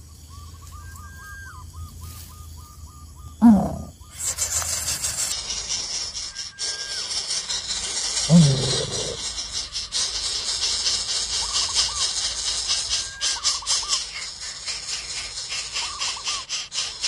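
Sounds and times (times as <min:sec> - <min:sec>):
chicks hissing: 0:03.4 - 0:17.0.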